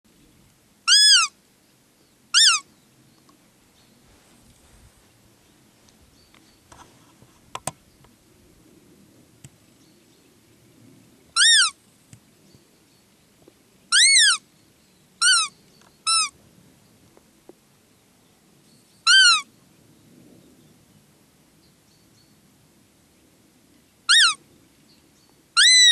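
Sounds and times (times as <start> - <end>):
deer lure call squeaks: 0.9 - 1.3, 2.4 - 2.6, 11.4 - 11.7, 13.9 - 14.4, 15.2 - 16.3, 19.1 - 19.4, 24.1 - 24.4, 25.6 - 25.9.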